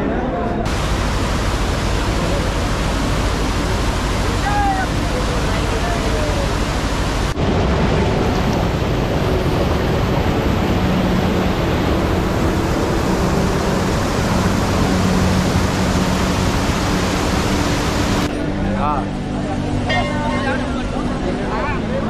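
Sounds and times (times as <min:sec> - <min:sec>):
river water rushing: 0:00.7 - 0:18.3.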